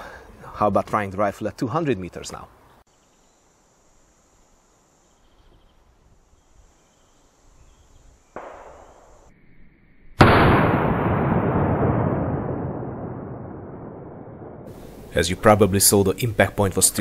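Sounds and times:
rifle shot with echo: 8.4s - 9.3s, 10.2s - 15.0s.

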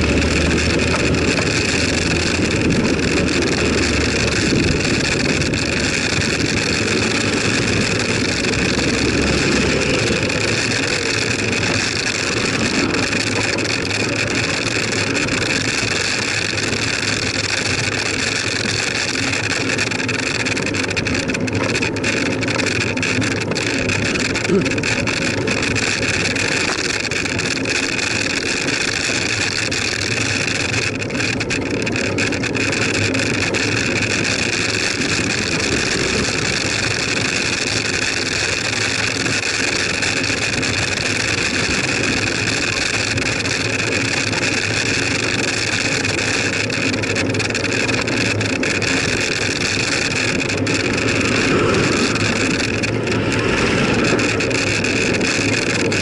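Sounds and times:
road noise: 0.0s - 56.0s.

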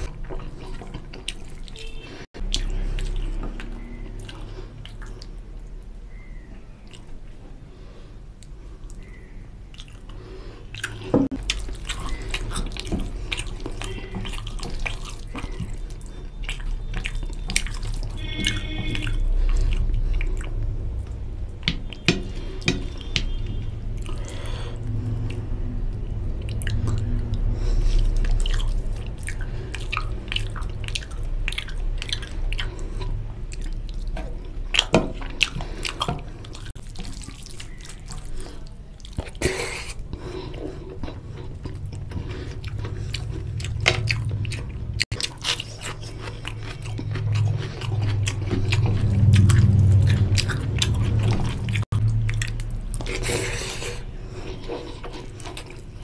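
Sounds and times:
wet chewing and lip smacks: 0.0s - 5.8s, 6.8s - 7.2s, 8.4s - 24.5s, 25.1s - 56.0s
fingers squelching food: 41.0s - 53.8s.

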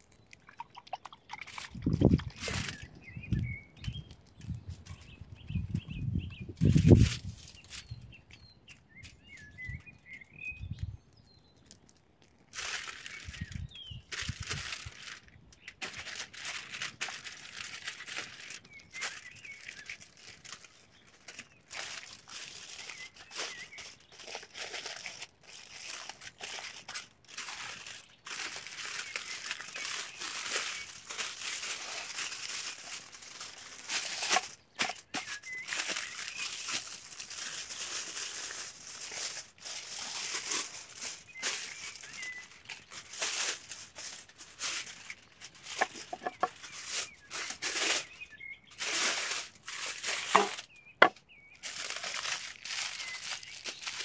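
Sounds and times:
aluminum foil crinkling: 0.0s - 54.0s
bird chirping: 0.1s - 12.0s, 34.6s - 36.8s, 41.1s - 43.2s, 45.1s - 48.9s, 50.2s - 51.6s.

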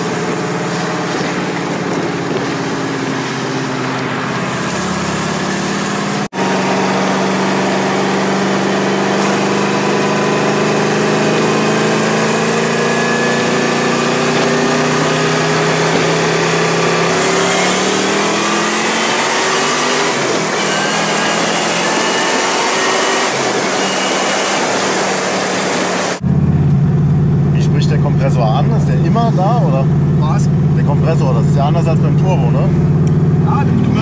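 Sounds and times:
wind rush: 0.0s - 5.6s
car engine pulling: 0.0s - 34.0s.

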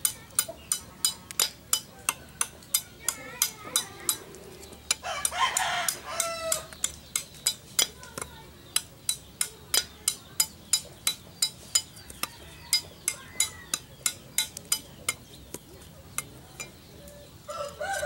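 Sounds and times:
rooster crowing: 5.0s - 6.7s, 17.5s - 18.0s.

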